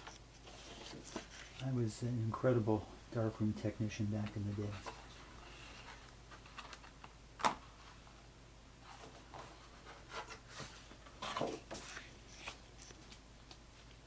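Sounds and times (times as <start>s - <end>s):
paper rustling and sliding: 0.0s - 1.8s, 8.8s - 12.6s.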